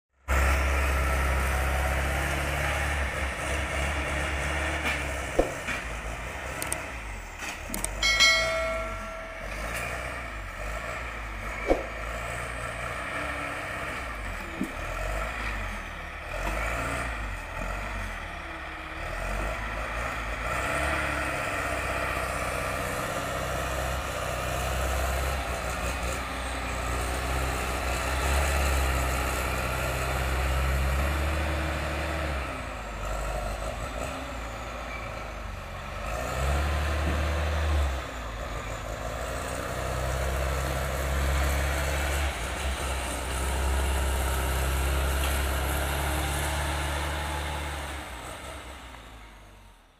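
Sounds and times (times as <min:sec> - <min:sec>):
heavy diesel engine: 0:00.1 - 0:49.9.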